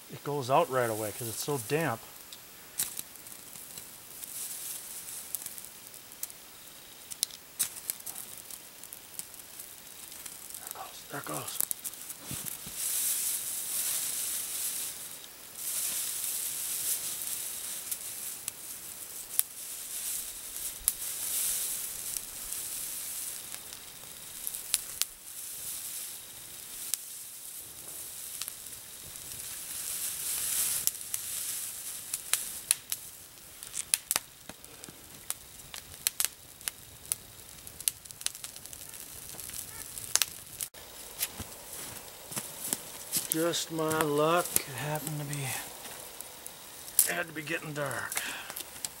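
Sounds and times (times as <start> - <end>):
fire crackling and popping: 0.0 - 49.0
tinder burning and hissing: 0.0 - 49.0.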